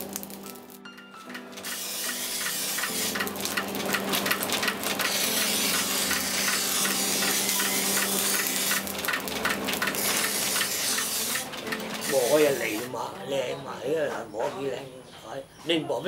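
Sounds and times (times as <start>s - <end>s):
grinder motor hum: 1.4s - 12.9s
blade grinding on stone wheel: 1.4s - 13.0s.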